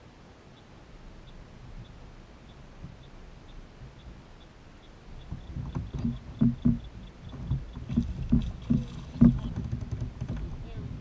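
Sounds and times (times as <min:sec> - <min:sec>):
thumps against kayak: 0:05.3 - 0:11.0.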